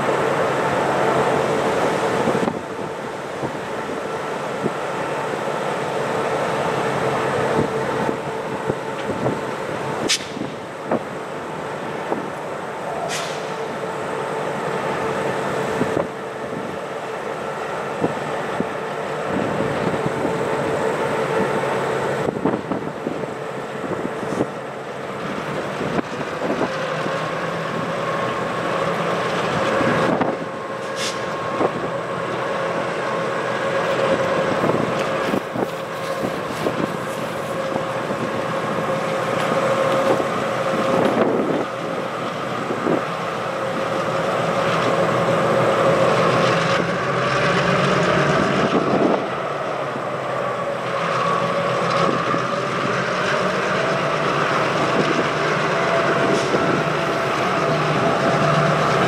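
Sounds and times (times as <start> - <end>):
diesel locomotive whine: 0.0 - 59.0
train knocks: 7.3 - 11.2, 23.8 - 59.0.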